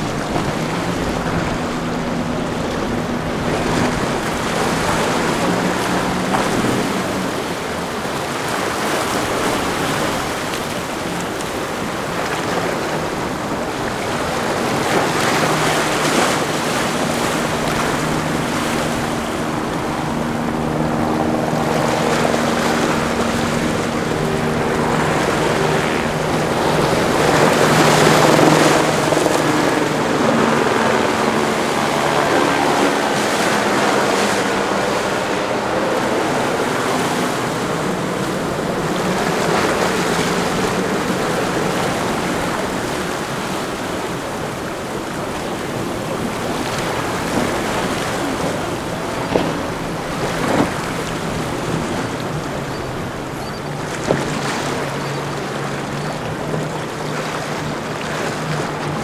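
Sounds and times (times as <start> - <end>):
outboard motor hum: 0.0 - 59.0
waves rushing and splashing: 0.0 - 59.0
wind on microphone: 0.0 - 59.0.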